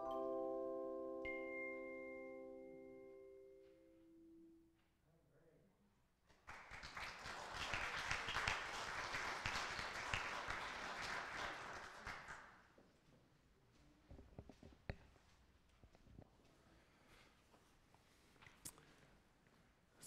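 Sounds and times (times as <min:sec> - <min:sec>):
chimes ringing: 0:00.0 - 0:04.6
congregation applauding: 0:06.3 - 0:12.7.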